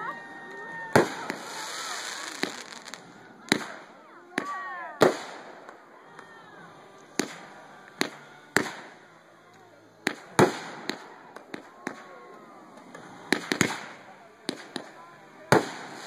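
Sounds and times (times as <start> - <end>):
firework shells bursting: 0.9 - 5.8, 12.9 - 16.0.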